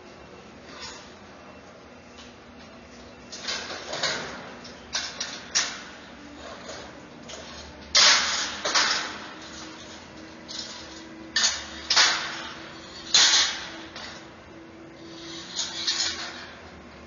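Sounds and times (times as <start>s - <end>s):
metal barricades clanging: 3.4s - 14.3s.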